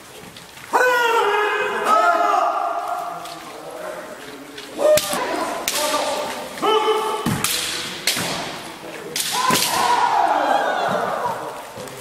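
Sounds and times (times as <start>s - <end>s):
loud shouts: 0.7s - 3.2s, 4.8s - 7.4s, 9.2s - 11.8s
bamboo swords striking armour: 4.8s - 6.3s, 7.2s - 10.1s.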